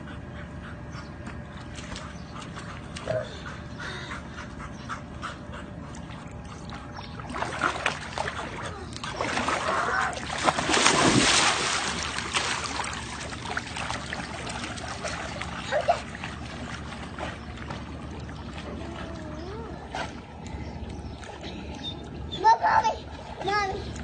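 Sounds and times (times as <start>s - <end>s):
water sloshing and splashing: 5.6s - 24.0s
dog splashing into pool: 7.2s - 20.3s.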